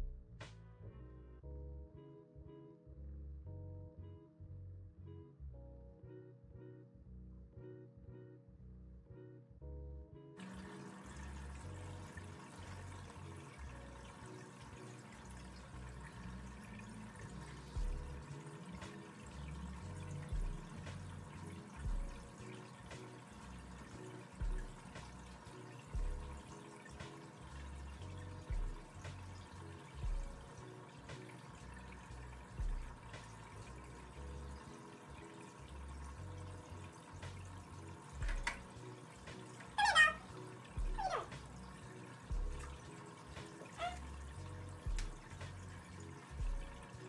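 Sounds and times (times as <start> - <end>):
water pouring and trickling: 10.4 - 47.0.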